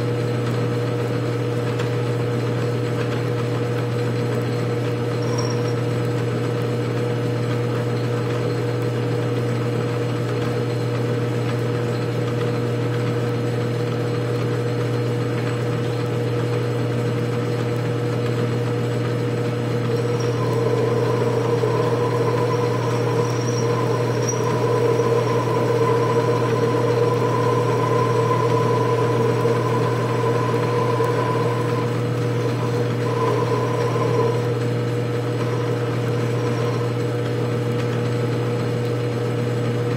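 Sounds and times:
lathe motor hum: 5.1 - 5.9, 19.1 - 38.4
high steady whine: 19.9 - 34.6.

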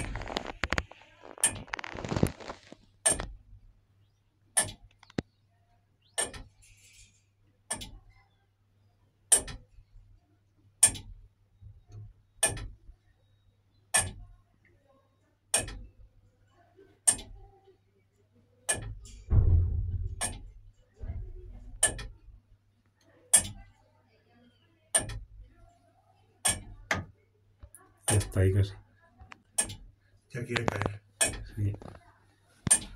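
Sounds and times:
tower clock ticking: 18.7 - 19.0, 21.8 - 22.2, 25.0 - 25.4, 30.5 - 31.8.

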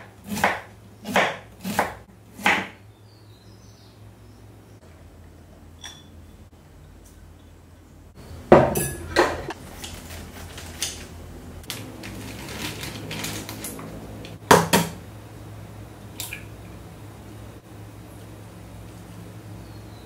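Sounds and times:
dishes and utensils clattering: 8.6 - 10.0.

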